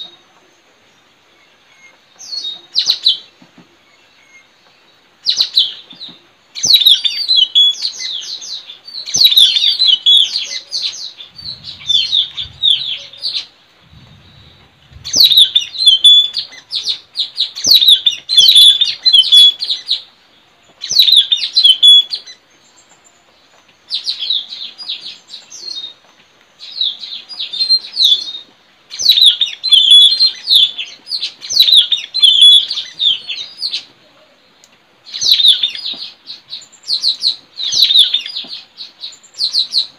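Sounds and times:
parrots chirping shrilly: 0:09.0 - 0:13.5, 0:15.0 - 0:20.0, 0:28.9 - 0:33.9.

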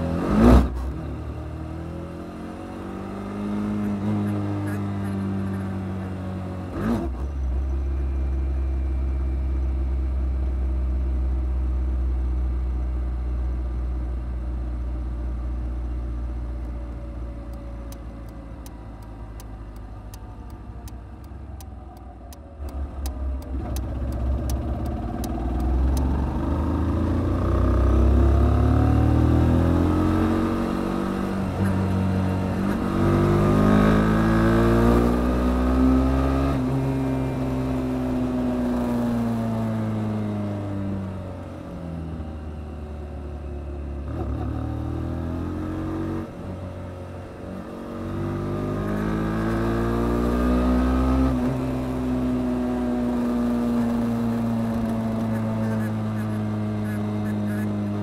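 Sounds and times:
motorcycle engine running: 0:18.2 - 0:28.8.

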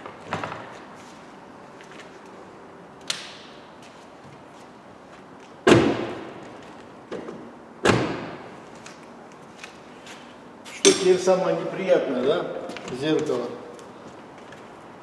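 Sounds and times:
car door slamming: 0:05.6 - 0:06.4, 0:07.2 - 0:08.5.

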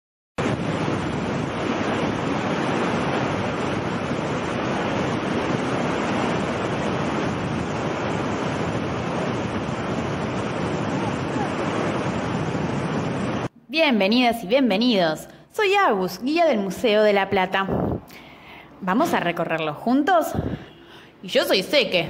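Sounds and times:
water rushing: 0:00.4 - 0:13.5
wind: 0:00.4 - 0:22.0.

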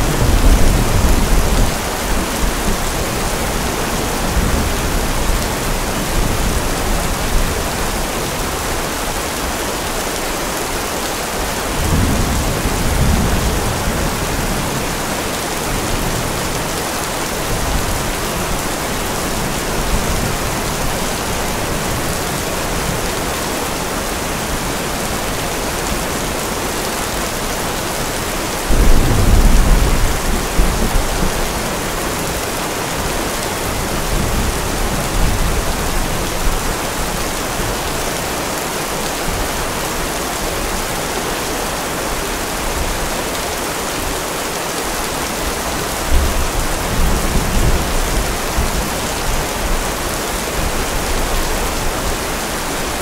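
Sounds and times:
thunder rumbling: 0:00.0 - 0:03.6, 0:28.6 - 0:32.2
heavy rain: 0:00.0 - 0:53.0.

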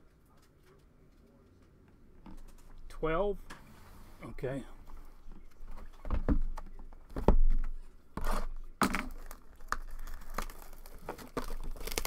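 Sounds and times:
plastic wrapper crinkling: 0:09.0 - 0:12.0.

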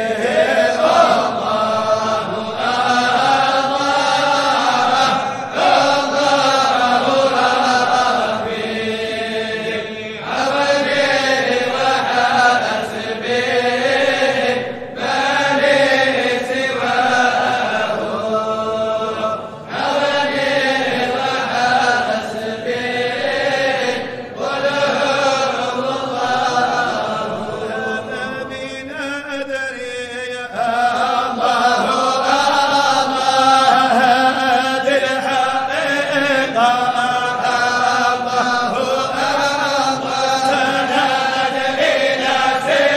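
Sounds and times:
chanted singing: 0:00.0 - 0:42.9.

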